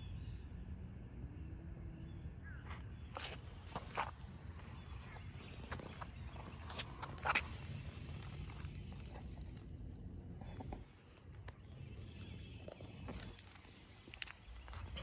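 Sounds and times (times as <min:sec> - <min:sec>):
wind rumble on microphone: 0:00.0 - 0:15.0
footsteps on concrete: 0:02.7 - 0:09.4.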